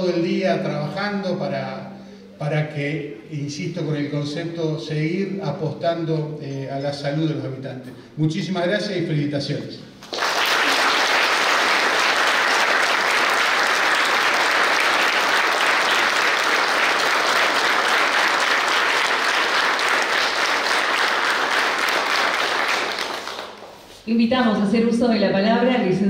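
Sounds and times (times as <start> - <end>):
audience applauding: 10.0 - 23.9.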